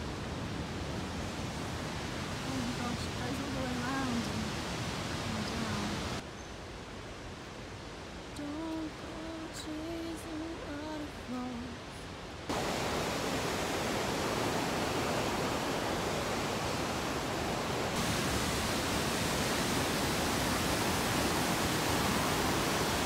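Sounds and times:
rushing water of waterfall: 0:00.0 - 0:23.0
person singing faintly: 0:08.4 - 0:12.0.

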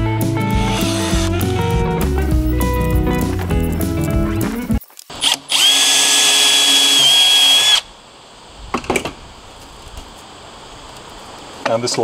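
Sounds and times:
power drill running: 0:00.6 - 0:01.4, 0:05.2 - 0:07.9.

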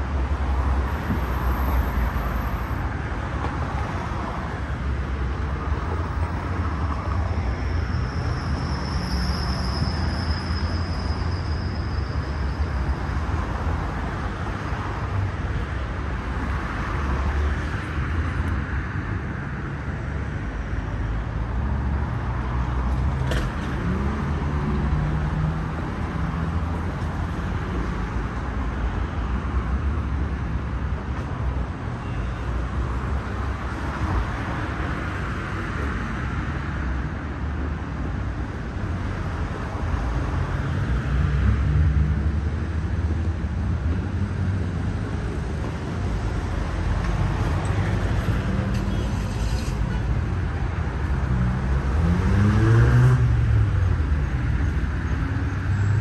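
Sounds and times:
road traffic rushing: 0:00.0 - 0:56.0.

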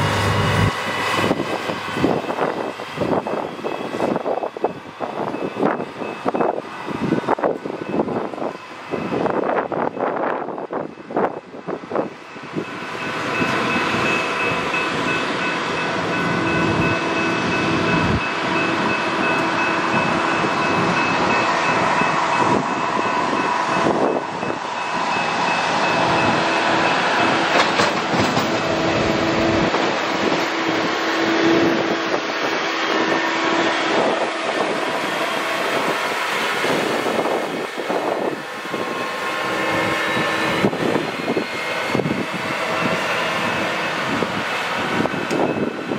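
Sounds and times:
rail machine engine whining: 0:00.0 - 0:45.9
wheels rolling on rails: 0:12.4 - 0:45.9.

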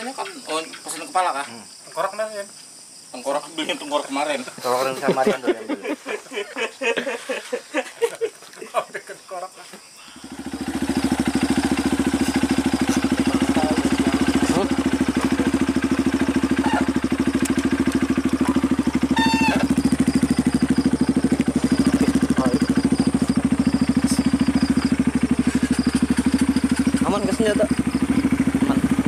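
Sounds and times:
motorcycle engine running: 0:10.2 - 0:29.0.

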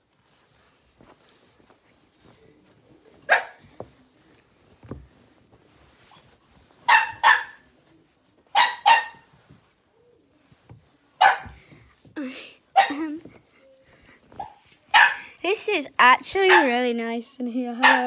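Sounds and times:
dog barking: 0:03.3 - 0:03.6, 0:06.9 - 0:07.6, 0:08.5 - 0:09.2, 0:11.2 - 0:11.6, 0:14.4 - 0:15.2.

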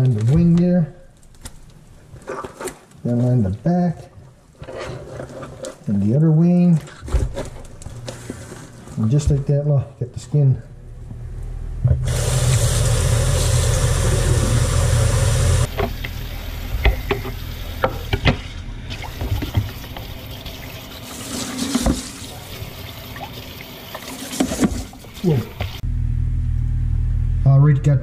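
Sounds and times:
faucet water rushing into sink: 0:12.0 - 0:25.8
knocks and taps in sink: 0:16.8 - 0:18.4.

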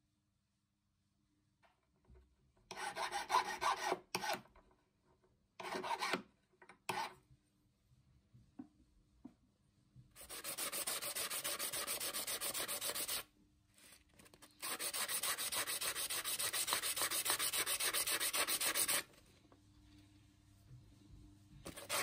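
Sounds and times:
metal ring rubbed on sandpaper: 0:10.2 - 0:13.2.

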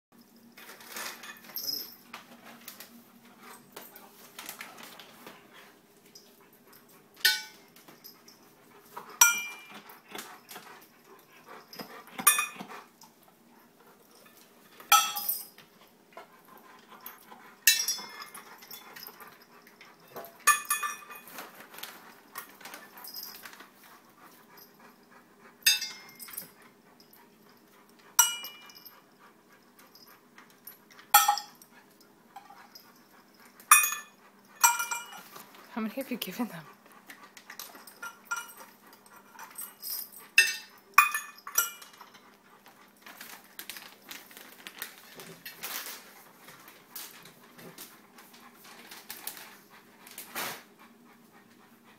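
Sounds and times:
treats clinking in steel bowl: 0:09.0 - 0:10.8, 0:14.2 - 0:15.7, 0:17.1 - 0:23.6, 0:25.6 - 0:26.5, 0:28.2 - 0:29.0, 0:31.0 - 0:31.7, 0:33.6 - 0:36.6, 0:37.5 - 0:42.3.

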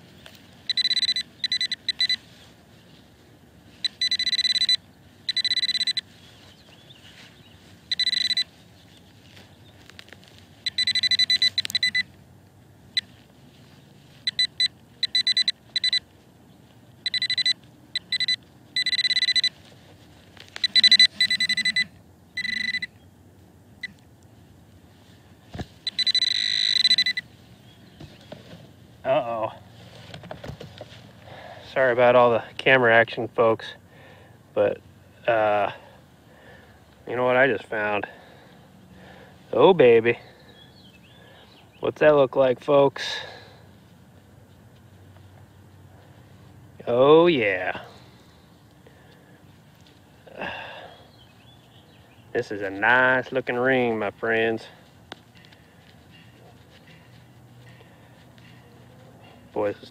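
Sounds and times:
metal detector high beeps: 0:00.7 - 0:02.3, 0:03.8 - 0:06.1, 0:07.9 - 0:08.5, 0:10.6 - 0:12.1, 0:14.2 - 0:16.1, 0:17.0 - 0:19.6, 0:20.6 - 0:23.0, 0:25.8 - 0:27.3.

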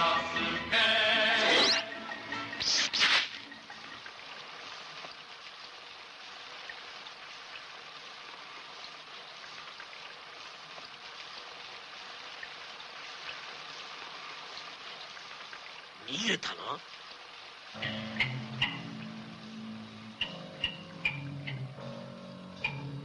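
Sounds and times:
music: 0:00.0 - 0:03.7, 0:17.8 - 0:23.0
steady rain falling: 0:03.3 - 0:23.0.

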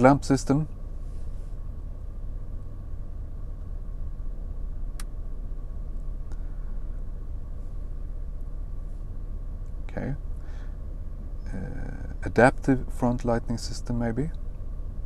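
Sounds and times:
car cabin rumble and hum: 0:00.0 - 0:15.0
sharp click: 0:05.0 - 0:05.2.

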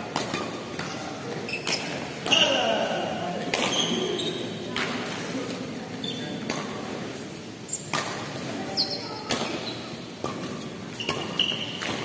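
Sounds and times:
rackets hitting shuttlecock: 0:00.0 - 0:05.2, 0:06.3 - 0:07.2, 0:07.8 - 0:12.0
shoes squeaking on court floor: 0:00.0 - 0:12.0.

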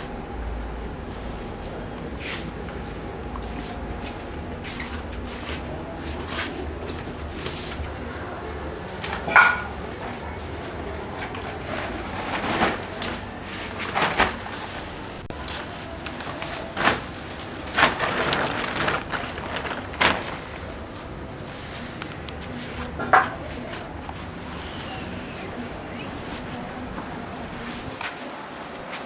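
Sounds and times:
steady background noise: 0:00.0 - 0:29.0
plastic bags crinkling: 0:11.8 - 0:22.2.

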